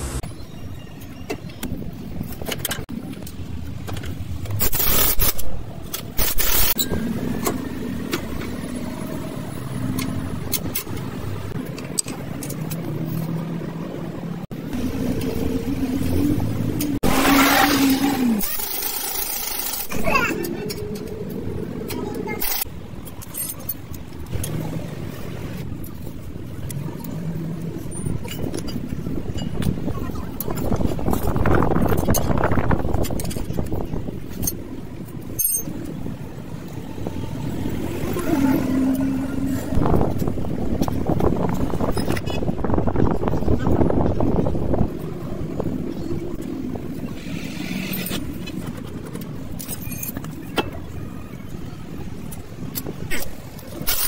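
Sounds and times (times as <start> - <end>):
low vehicle rumble: 5.5 - 18.6.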